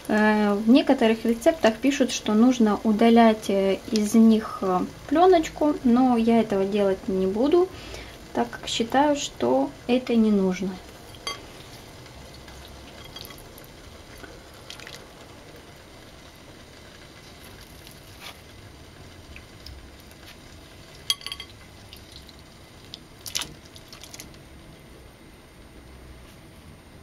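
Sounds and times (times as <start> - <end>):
low steady background noise: 0.0 - 27.0
soft liquid sounds: 10.8 - 24.5
water splashes: 21.8 - 24.4.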